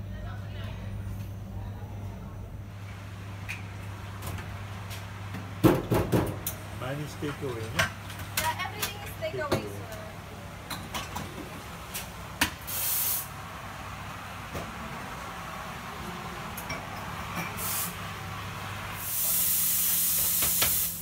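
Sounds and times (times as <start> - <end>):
steam wand hissing: 12.6 - 13.3, 17.6 - 18.0, 19.0 - 21.0.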